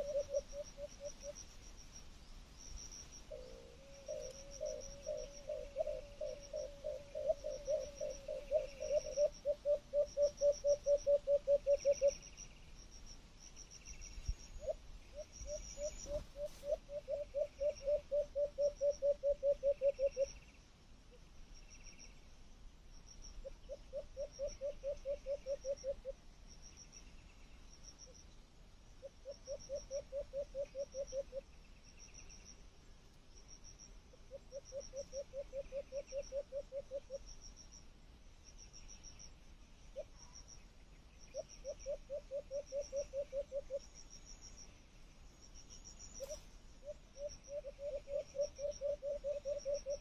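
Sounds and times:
high rhythmic insect chirping: 0.0s - 20.5s, 29.0s - 32.6s, 33.3s - 50.0s
low pulsing animal call: 3.3s - 12.2s.

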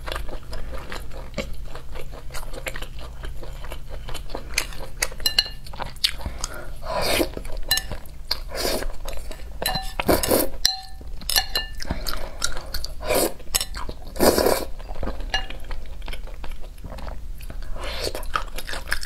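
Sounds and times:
chewing: 0.0s - 19.0s
chopsticks clinking on glass bowl: 5.2s - 5.6s, 9.6s - 11.8s, 15.3s - 15.6s
slurping noodles: 6.4s - 7.3s, 13.0s - 13.4s, 14.2s - 14.7s.

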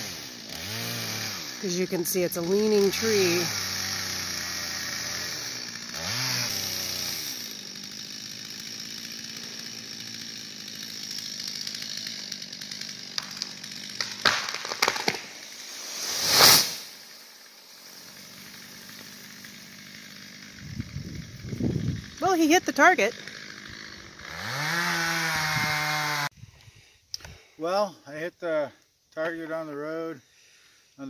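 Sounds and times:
chainsaw cutting: 0.0s - 26.3s
wood cracking: 11.2s - 15.5s
tree crashing onto gravel: 13.0s - 17.0s.

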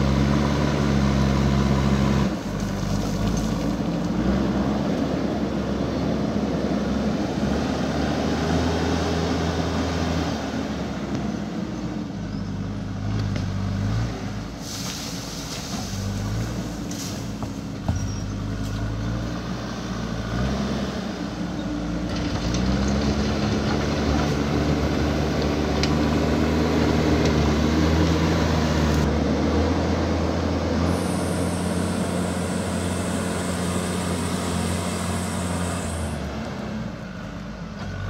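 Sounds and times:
diesel engine working under load: 0.0s - 38.0s
bucket pushing dirt and rock: 2.4s - 4.0s.

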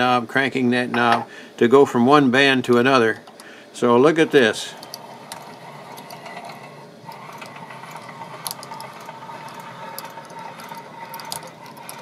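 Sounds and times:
gear train whirring: 4.2s - 12.0s.

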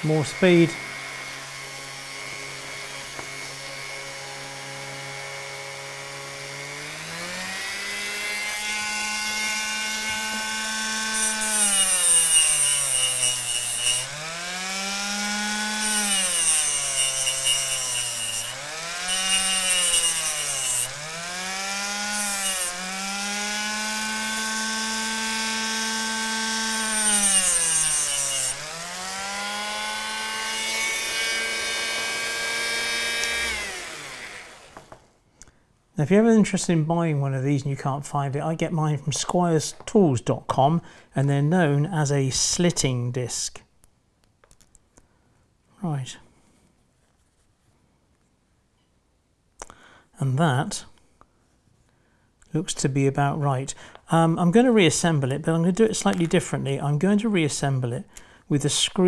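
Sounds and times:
rotary tool motor whine: 0.8s - 35.0s.

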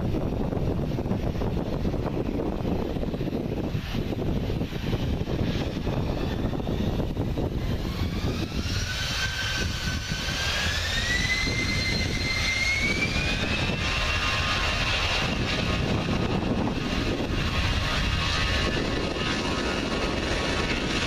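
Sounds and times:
jet engine whine rising: 0.0s - 21.0s
steady engine rumble: 0.0s - 21.0s.

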